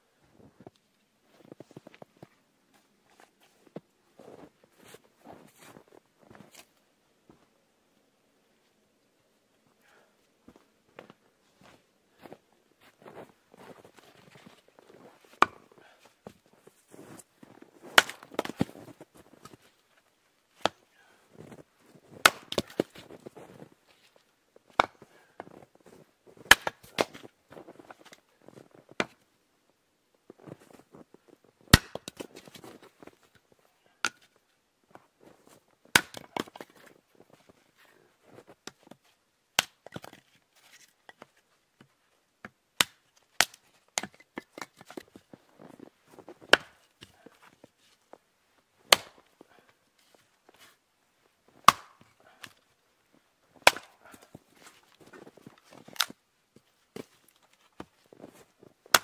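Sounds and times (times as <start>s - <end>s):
hatchet chopping firewood: 15.4s - 15.9s, 17.9s - 18.7s, 22.2s - 23.2s, 26.5s - 27.3s, 31.7s - 32.7s, 35.9s - 36.8s, 39.6s - 40.2s, 42.4s - 45.0s, 46.5s - 47.5s, 48.9s - 49.3s, 51.6s - 52.6s, 53.6s - 54.3s.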